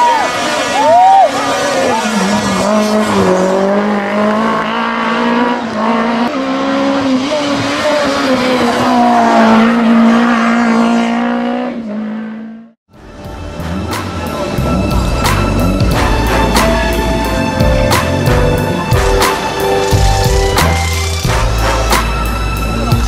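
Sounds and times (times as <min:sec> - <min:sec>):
rally car engine at high revs: 0:00.2 - 0:12.8.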